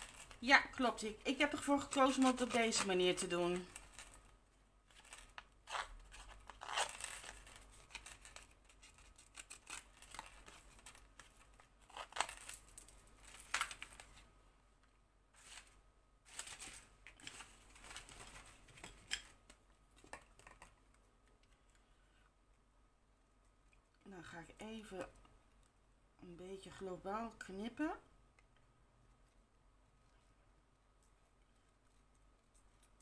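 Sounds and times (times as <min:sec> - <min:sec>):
paper rustling: 0:15.3 - 0:19.3.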